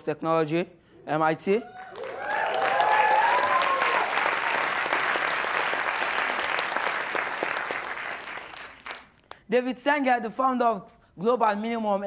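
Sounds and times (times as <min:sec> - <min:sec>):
voices cheering: 0:01.6 - 0:05.1
audience applauding: 0:01.7 - 0:09.3.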